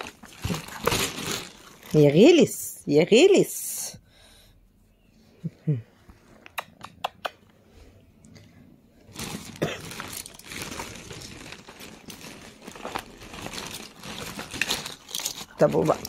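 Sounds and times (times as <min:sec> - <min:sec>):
plastic bag crinkling: 0:00.0 - 0:02.6, 0:09.0 - 0:16.0.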